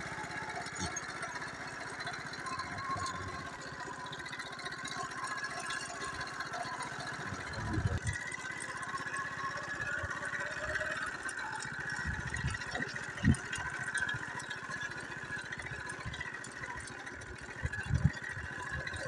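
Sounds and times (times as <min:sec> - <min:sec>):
small vehicle engine running: 0:00.0 - 0:19.0.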